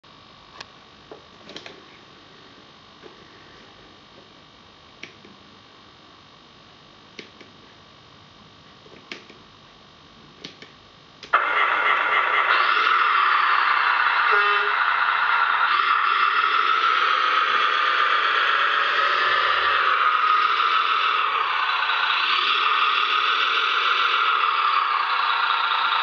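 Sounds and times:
steady electrical hum: 0.0 - 26.0
model truck engine sound effect: 11.4 - 26.0.

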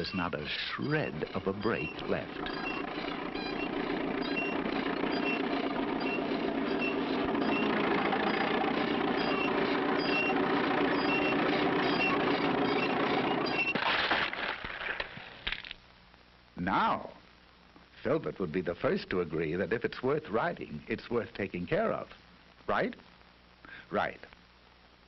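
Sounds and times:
short high squeak: 1.6 - 8.6, 9.2 - 13.8.

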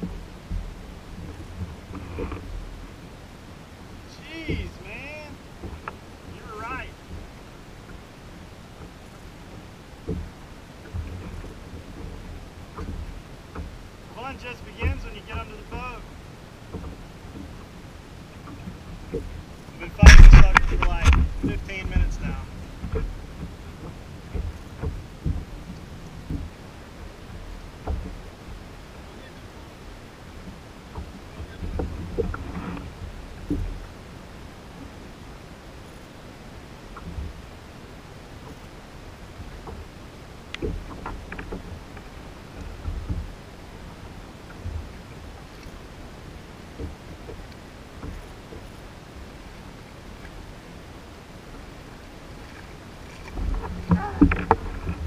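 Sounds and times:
sea water lapping: 0.0 - 55.0
wind rumbling on microphone: 0.0 - 55.0
light knocks on kayak: 10.0 - 13.8, 20.0 - 22.2, 22.8 - 26.5, 27.3 - 28.3, 30.4 - 33.9, 40.5 - 43.4, 46.8 - 48.7, 52.4 - 55.0
sharp knocks: 20.0 - 22.1.

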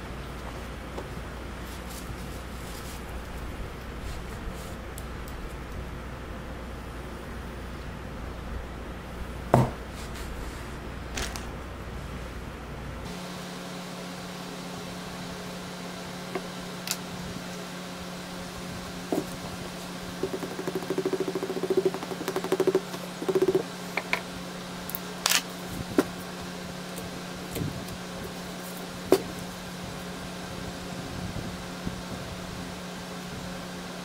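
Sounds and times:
steady low hum: 0.0 - 34.0
tools knocking and clicking: 20.2 - 24.2.

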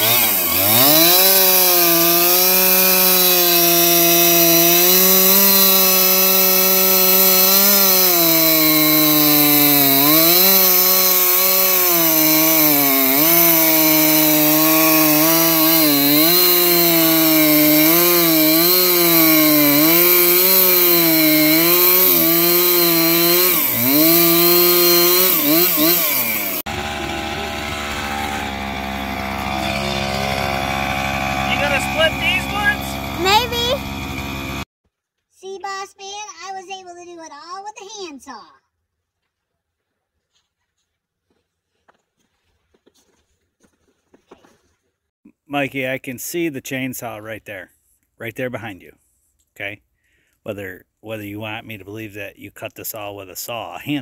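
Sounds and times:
chainsaw cutting log: 0.0 - 34.7.

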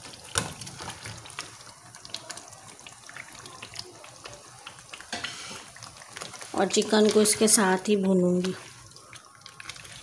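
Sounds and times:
sizzling and crackling in oil: 0.0 - 10.0
food thumping into a pan: 0.2 - 1.5.

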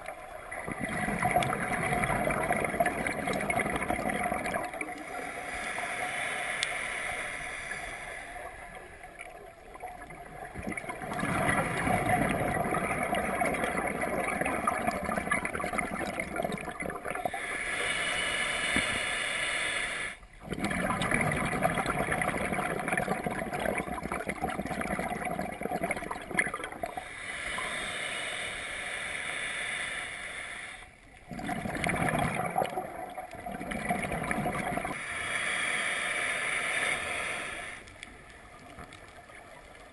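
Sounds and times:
underwater regulator bubbles: 0.0 - 6.9, 7.5 - 17.6, 20.4 - 27.8, 31.2 - 35.0.

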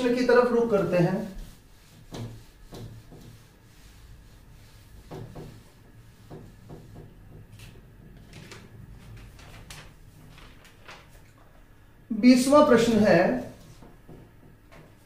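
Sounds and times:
hand wiping whiteboard: 0.0 - 11.4, 12.4 - 15.0
paper rustling: 7.6 - 11.6.

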